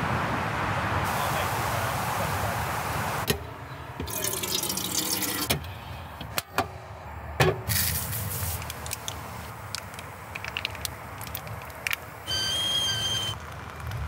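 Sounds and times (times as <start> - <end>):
water pouring into a vessel: 4.1 - 5.5.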